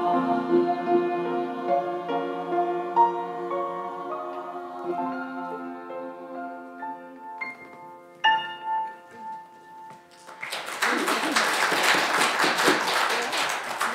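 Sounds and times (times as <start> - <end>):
applause: 10.1 - 13.9.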